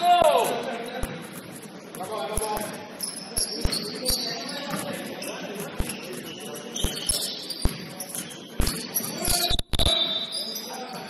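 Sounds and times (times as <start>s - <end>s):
sneaker squeaks: 0.5s - 11.0s
basketball bouncing on gym floor: 2.4s - 9.9s.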